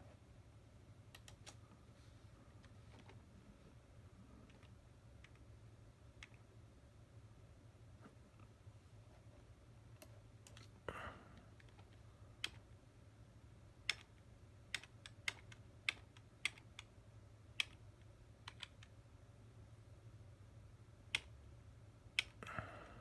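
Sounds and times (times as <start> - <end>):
faint low hum: 0.0 - 23.0
computer mouse clicks: 1.1 - 1.6, 4.4 - 5.5, 6.2 - 6.5, 9.9 - 10.8, 11.6 - 12.6, 13.8 - 16.9, 17.6 - 17.8, 18.4 - 19.0, 21.1 - 21.4, 22.1 - 22.4.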